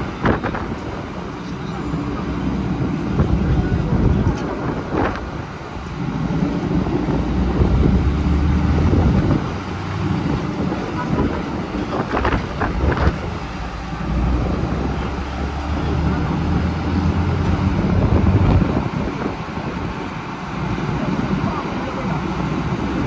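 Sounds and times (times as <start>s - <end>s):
heavy truck engine running: 0.0s - 23.0s
wind buffeting microphone: 0.0s - 23.0s.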